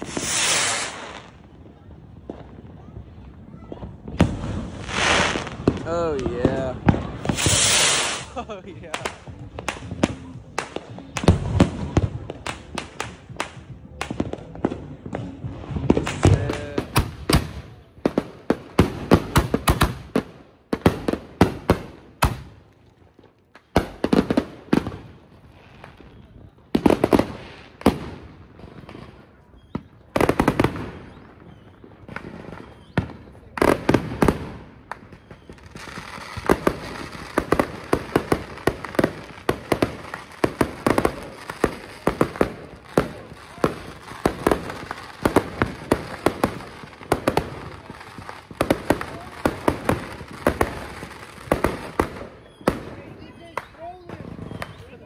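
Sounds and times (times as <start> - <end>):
fireworks crackling hiss: 0.0 - 1.6, 3.9 - 14.2, 32.1 - 54.9
fireworks bangs: 0.0 - 55.0.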